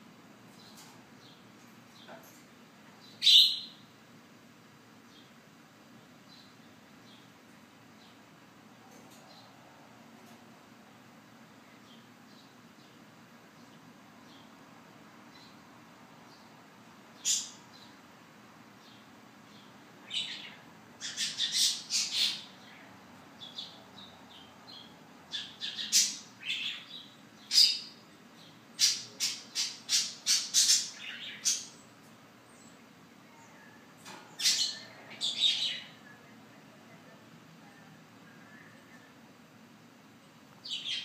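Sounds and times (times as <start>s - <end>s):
birds squawking and chirping: 17.2s - 17.9s, 19.5s - 28.0s, 28.7s - 31.9s, 33.5s - 36.2s, 40.6s - 41.0s.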